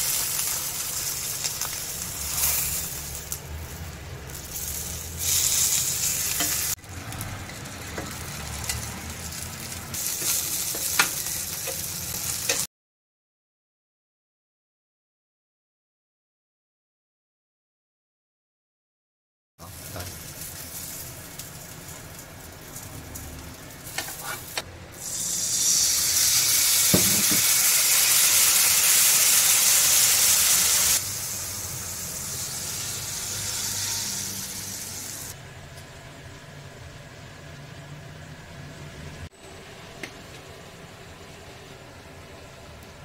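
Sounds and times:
food sizzling: 0.0 - 12.7, 19.6 - 35.4.

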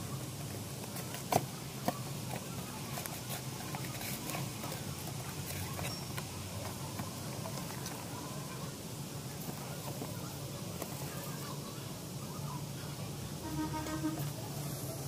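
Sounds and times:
cardboard and plastic crinkling: 0.4 - 8.2.

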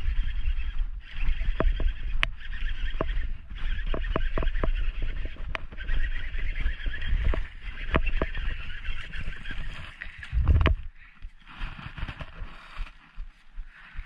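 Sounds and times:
fishing reel whirring: 0.0 - 10.9
rod and reel clicks: 0.0 - 14.0
wind rumble on microphone: 0.0 - 14.0.

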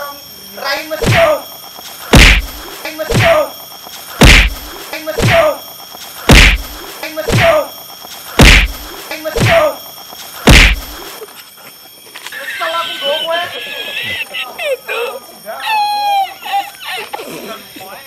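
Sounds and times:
loud comedy whacks: 1.0 - 1.4, 2.1 - 3.4, 4.2 - 5.5, 6.3 - 7.6, 8.4 - 9.7, 10.5 - 11.0
smaller hit: 2.2 - 3.4, 4.2 - 5.5, 6.3 - 7.6, 8.4 - 9.6, 10.5 - 11.0.

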